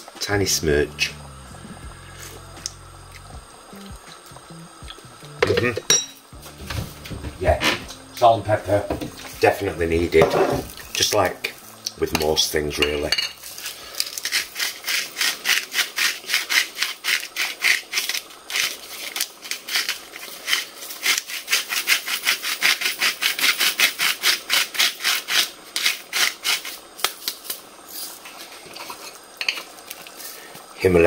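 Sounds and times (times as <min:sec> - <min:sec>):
salt mill grinding: 0:06.8 - 0:28.2.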